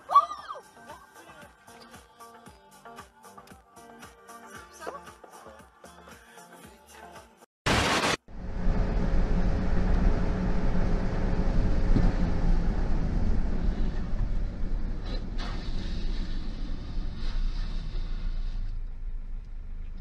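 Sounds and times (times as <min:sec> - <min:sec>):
car interior road and engine rumble: 0:08.3 - 0:20.0.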